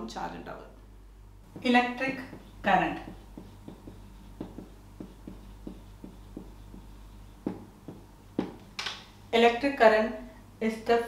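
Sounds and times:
faint low hum: 0:00.0 - 0:11.0
marker writing on whiteboard: 0:01.5 - 0:08.7.

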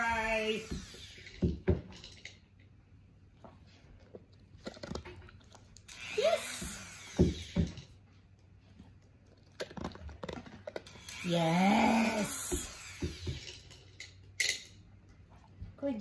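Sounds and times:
rotary tool whirring: 0:05.9 - 0:07.8, 0:10.9 - 0:13.9.

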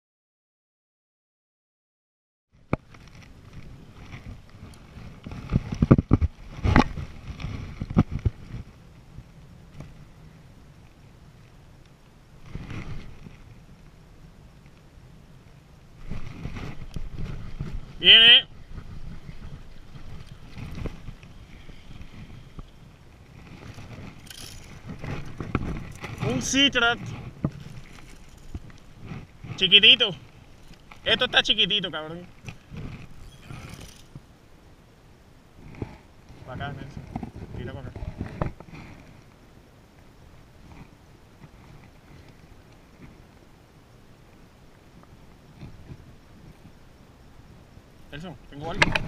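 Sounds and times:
wind buffeting microphone: 0:16.0 - 0:34.3.

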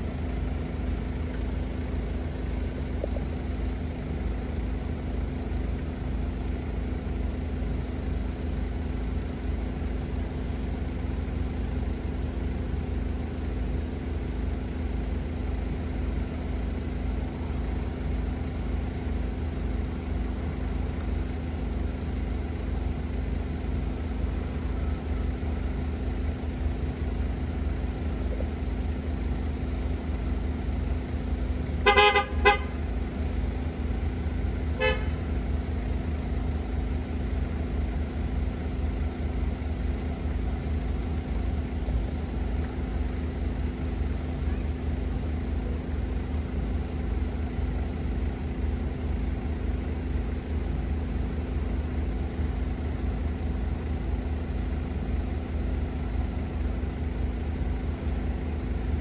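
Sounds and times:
diesel train idling: 0:00.0 - 0:59.0
train horn blasts: 0:31.8 - 0:32.8, 0:34.8 - 0:35.3.

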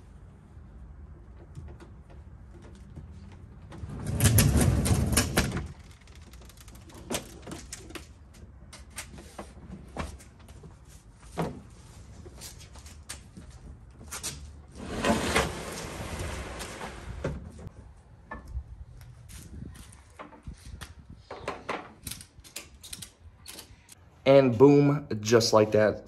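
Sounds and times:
plastic boat hull scraping: 0:14.8 - 0:17.7.

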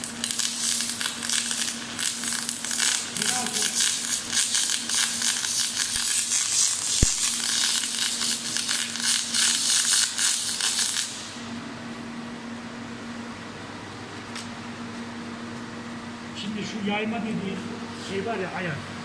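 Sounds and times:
welding arc crackling and sizzling: 0:00.0 - 0:11.5.

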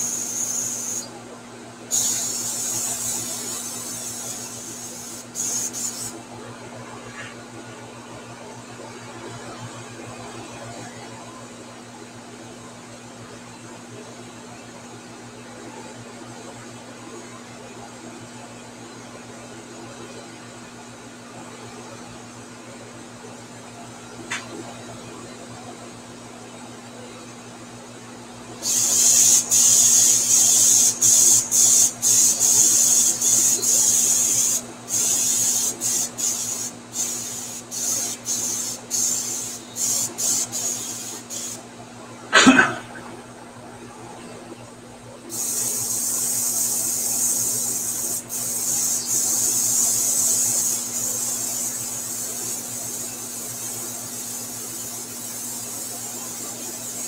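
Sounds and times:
airbrush hissing in bursts: 0:00.0 - 0:01.1, 0:01.9 - 0:06.2, 0:28.6 - 0:41.6, 0:45.3 - 0:57.0.

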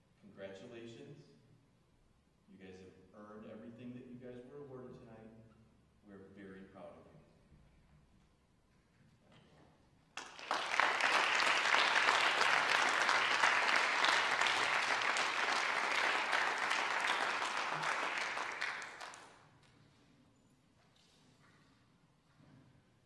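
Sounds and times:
crowd applauding: 0:10.2 - 0:19.4.

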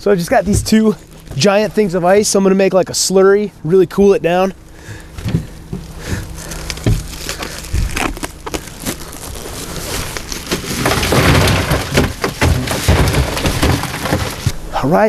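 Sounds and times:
ice cracking and crunching: 0:04.9 - 0:14.6.

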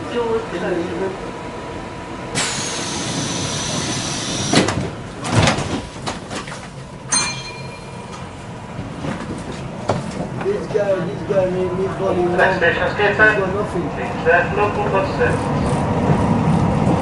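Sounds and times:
train doors thudding shut: 0:02.4 - 0:10.4.

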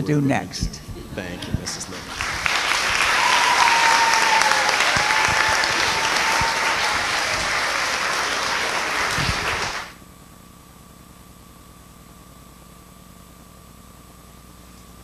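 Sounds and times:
audience applauding: 0:01.2 - 0:10.0.

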